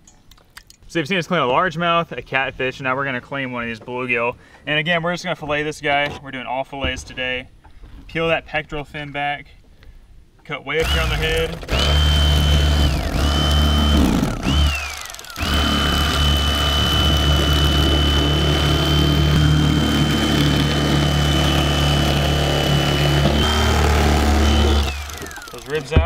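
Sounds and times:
electric fillet knife motor whine: 0:10.8 - 0:26.0.

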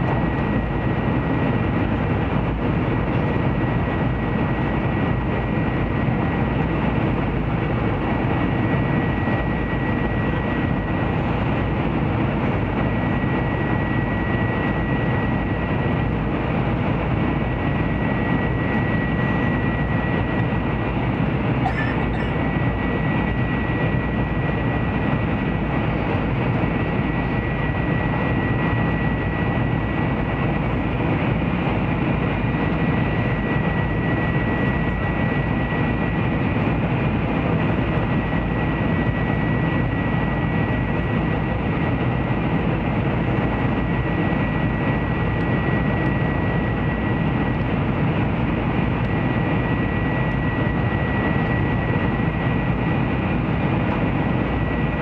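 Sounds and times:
high whine: 0:21.4 - 0:23.4.

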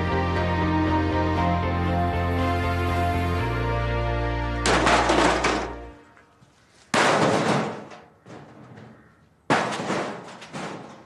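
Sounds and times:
theme tune chord: 0:00.0 - 0:04.7
hammer crashing on metal: 0:04.7 - 0:05.8.

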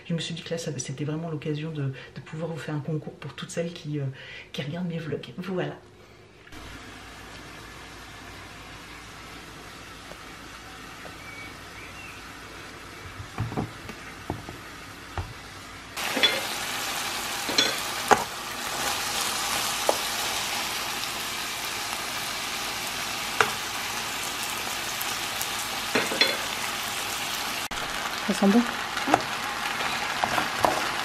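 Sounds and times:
food sizzling in a pan: 0:06.6 - 0:31.0.

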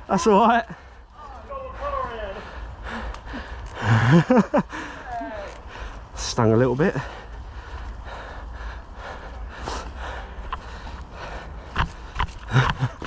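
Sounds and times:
person breathing hard: 0:00.7 - 0:06.2, 0:07.0 - 0:13.0.

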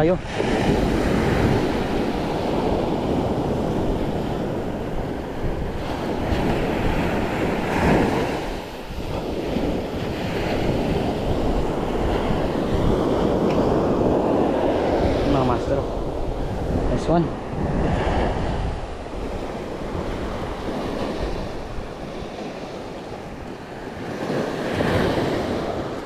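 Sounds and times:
sea waves washing onto shore: 0:00.0 - 0:26.0
wind buffeting microphone: 0:00.0 - 0:26.0.

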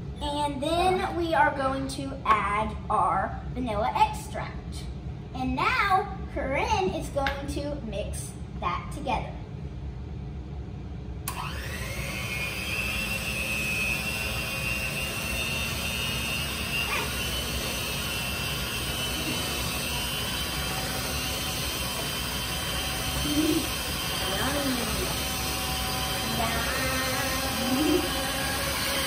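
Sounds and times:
electric hand mixer whining: 0:11.3 - 0:29.0.

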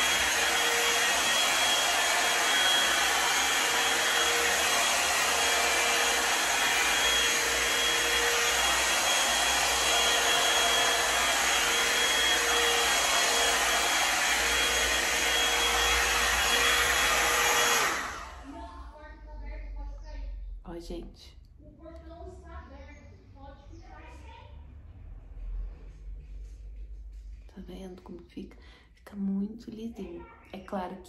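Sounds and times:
hair dryer blowing air: 0:00.0 - 0:18.7.

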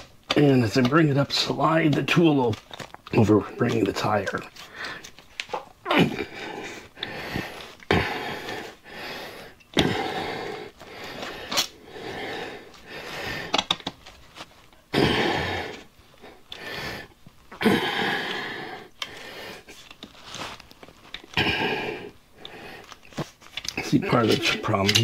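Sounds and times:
man breathing hard: 0:04.6 - 0:05.1, 0:06.0 - 0:13.7, 0:14.9 - 0:19.9, 0:21.3 - 0:23.2.

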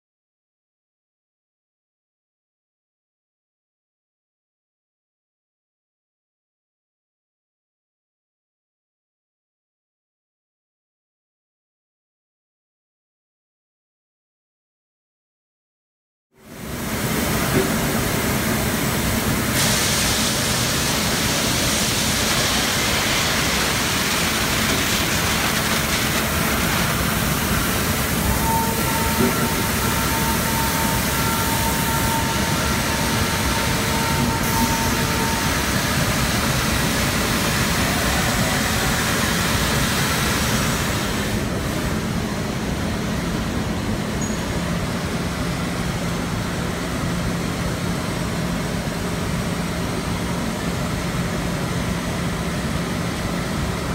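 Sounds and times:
loud steady machine noise: 0:16.4 - 0:53.9.

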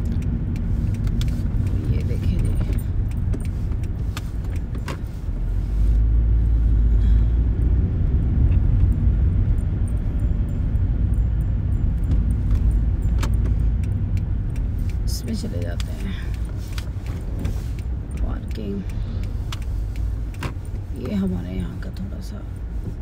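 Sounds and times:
light clicks and rattles: 0:00.0 - 0:05.6
engine and road rumble: 0:00.0 - 0:23.0.

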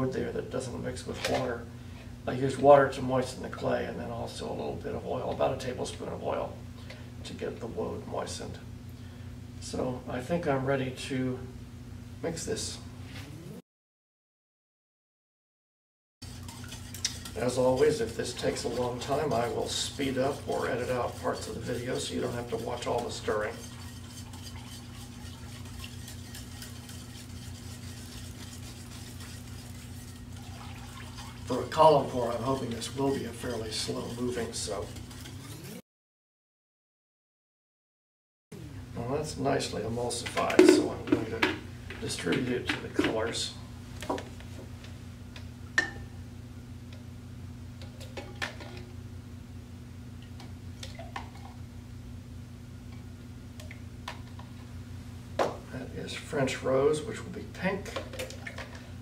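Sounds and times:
steady low hum: 0:16.2 - 0:35.8, 0:38.5 - 0:59.0
stick blender running: 0:16.2 - 0:35.8.

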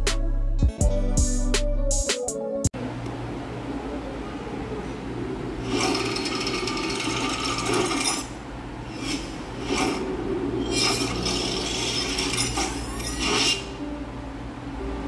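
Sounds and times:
steady low hum: 0:02.8 - 0:15.0
short noisy sound effect bursts: 0:05.6 - 0:13.8.

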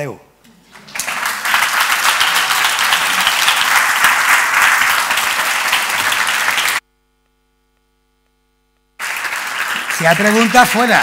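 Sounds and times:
audience applauding: 0:00.7 - 0:06.8, 0:09.0 - 0:11.0.

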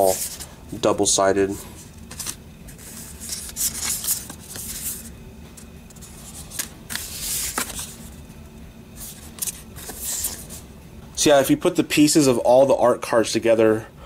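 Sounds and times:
cardboard cards shuffling: 0:02.1 - 0:05.1, 0:05.9 - 0:08.2, 0:09.0 - 0:10.6.

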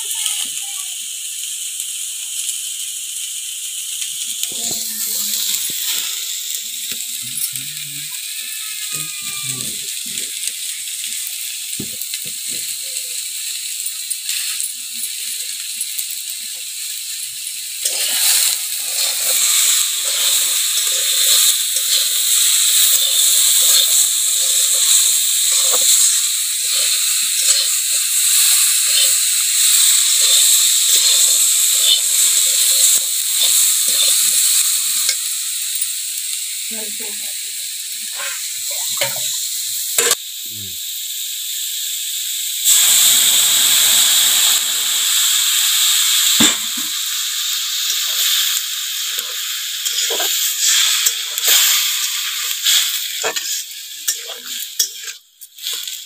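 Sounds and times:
food sizzling in a pan: 0:00.0 - 0:56.0
metal spatula scraping: 0:17.8 - 0:34.4.

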